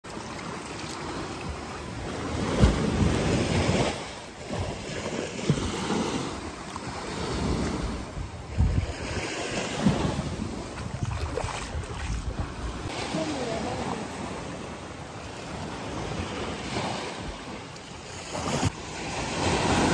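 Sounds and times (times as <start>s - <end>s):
sea waves: 0.0s - 19.9s
wind buffeting microphone: 7.2s - 12.9s.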